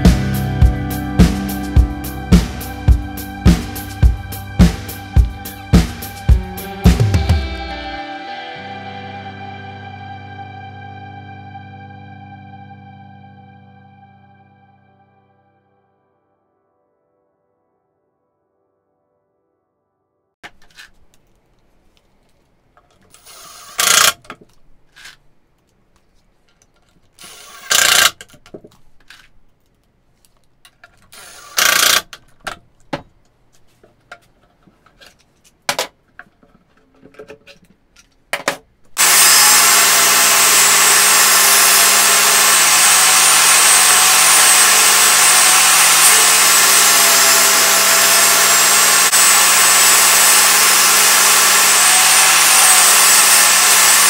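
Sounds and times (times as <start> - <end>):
cordless drill driving screws: 23.2 - 24.2, 27.2 - 28.2, 31.1 - 32.1, 39.0 - 54.0
table saw running: 39.0 - 54.0.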